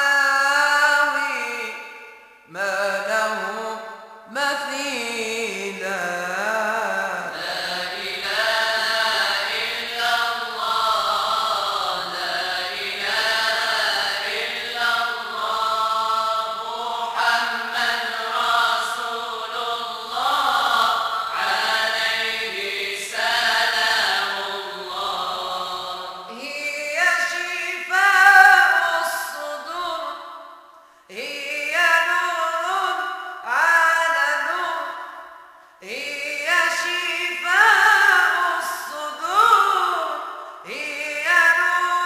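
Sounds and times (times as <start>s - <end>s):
vocal group chanting: 6.8s - 30.1s.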